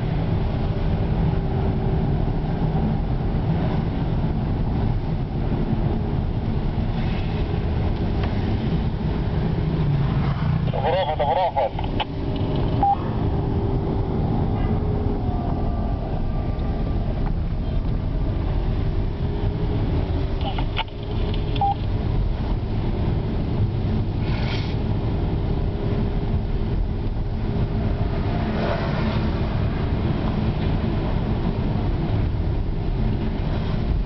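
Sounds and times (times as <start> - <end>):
car engine and tyre rumble: 0.0 - 34.0.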